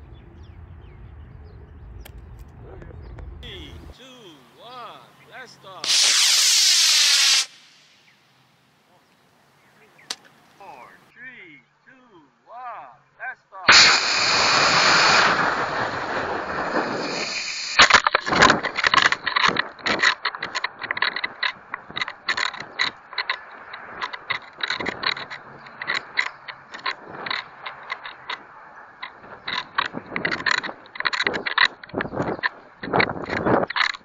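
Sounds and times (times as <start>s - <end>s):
rocket motor hissing: 5.8s - 8.2s, 13.7s - 18.0s
rapid clicking and rattling: 17.8s - 28.4s, 29.0s - 34.0s.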